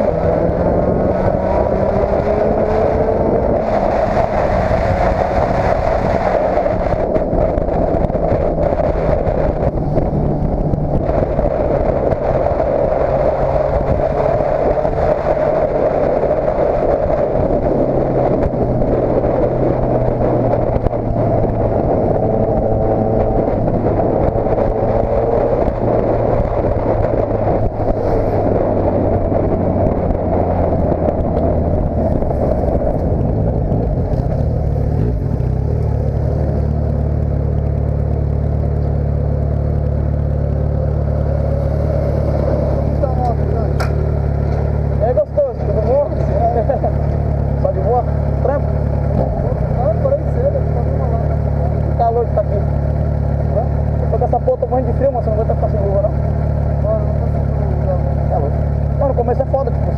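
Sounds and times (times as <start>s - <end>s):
motorcycle engine revving and idling: 0.0s - 59.9s.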